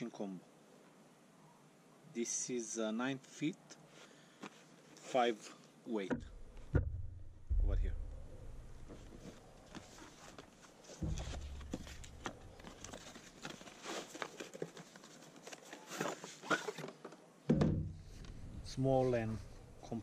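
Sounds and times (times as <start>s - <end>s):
cardboard box rustling and scraping: 9.0s - 16.9s
taps and knocks: 11.0s - 13.0s.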